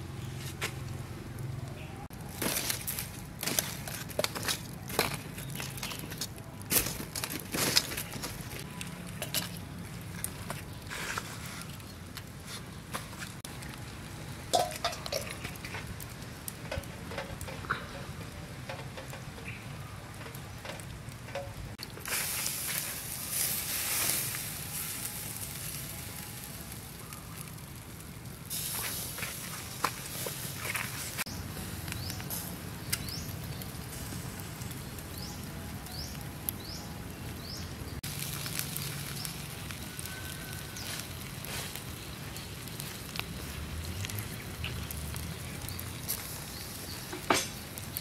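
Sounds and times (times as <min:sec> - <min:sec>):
charcoal fire crackling: 0:00.0 - 0:48.0
meat sizzling on grill: 0:13.4 - 0:48.0.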